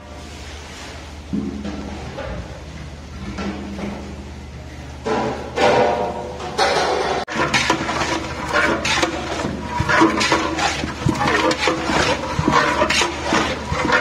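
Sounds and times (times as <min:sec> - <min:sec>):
paddle stirring meat in pot: 0:07.3 - 0:14.0.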